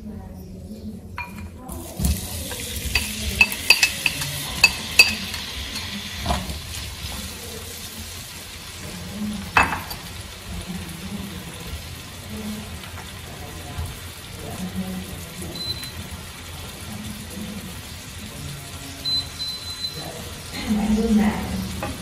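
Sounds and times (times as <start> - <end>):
tomatoes sizzling in hot oil: 1.2 - 22.0
chopsticks scraping a pan: 2.4 - 7.3.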